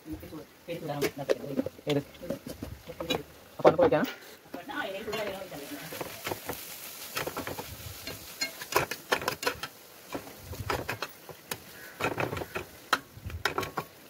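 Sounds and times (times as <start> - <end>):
spatula scraping a frying pan: 5.0 - 14.0.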